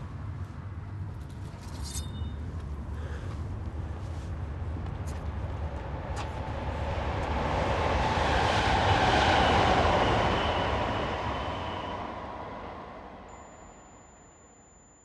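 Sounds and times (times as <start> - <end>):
faint high whine: 13.3 - 15.0.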